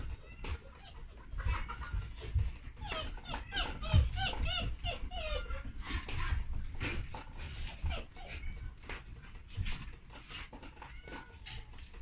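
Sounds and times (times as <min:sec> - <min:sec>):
puppy whimpering and yipping: 0:00.0 - 0:09.0.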